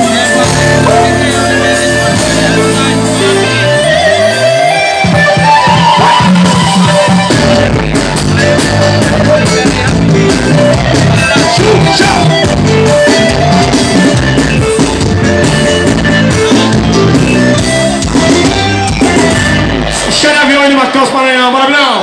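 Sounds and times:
person singing: 0.0s - 4.4s
crowd: 0.0s - 22.0s
live band music over pa: 0.0s - 22.0s.

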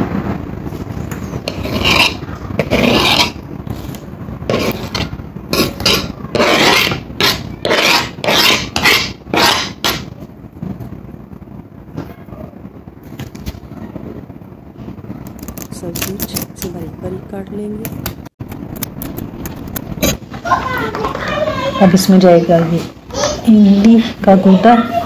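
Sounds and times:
utensil scraping cutting board: 1.2s - 10.1s.

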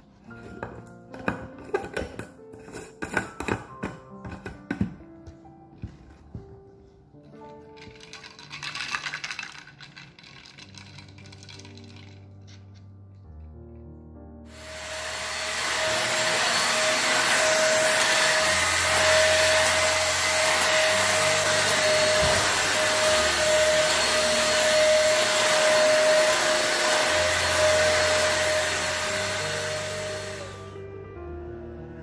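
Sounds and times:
vacuum cleaner running: 14.5s - 30.9s.

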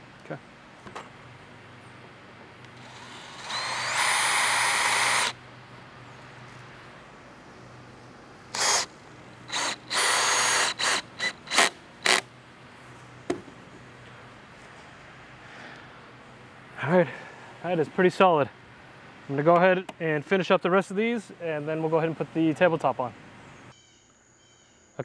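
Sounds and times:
cordless drill driving screws: 2.8s - 5.4s, 8.6s - 8.9s, 9.5s - 12.2s.

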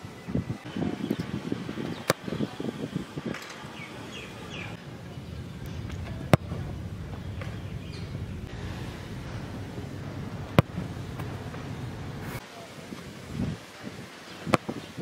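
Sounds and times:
outdoor background noise: 0.0s - 15.0s
bird chirps: 3.7s - 8.5s
football kicked thud: 5.9s - 8.2s.

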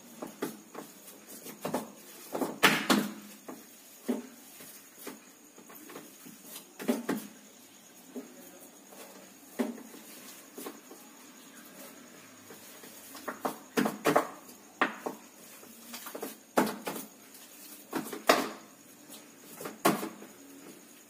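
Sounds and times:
knocks and thuds on a plate: 13.3s - 15.2s, 19.6s - 20.2s.

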